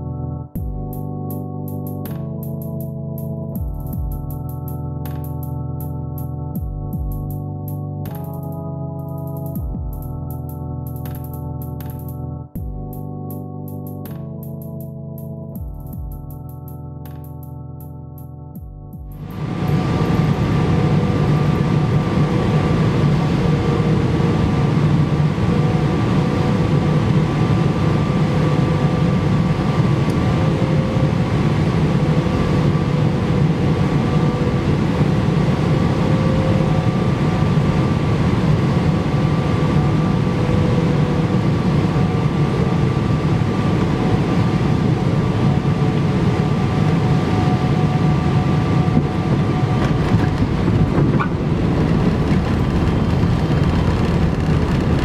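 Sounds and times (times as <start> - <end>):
airliner cabin roar: 19.2 - 55.0
faint whining tones: 19.2 - 55.0.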